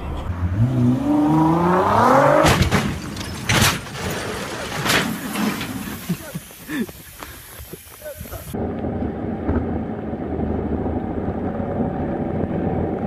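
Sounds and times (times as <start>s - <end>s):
car engine revving: 0.0s - 2.8s.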